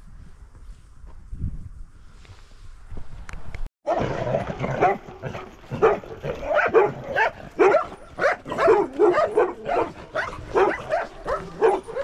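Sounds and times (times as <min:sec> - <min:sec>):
dog barking: 0:04.7 - 0:12.0.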